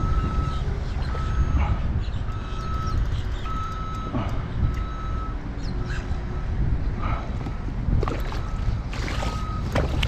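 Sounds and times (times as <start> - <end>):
wind: 0.0 - 10.0
water: 7.0 - 10.0.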